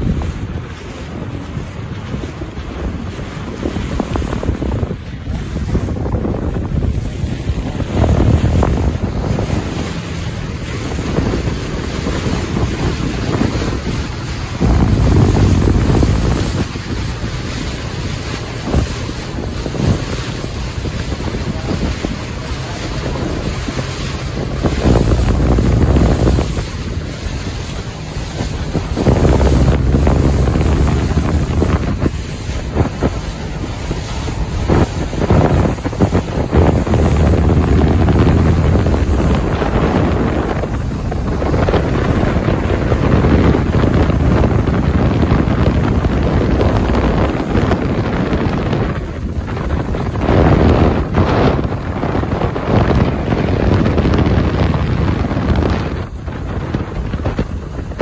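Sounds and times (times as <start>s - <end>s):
water rushing past boat: 0.0s - 58.0s
wind buffeting microphone: 0.0s - 58.0s.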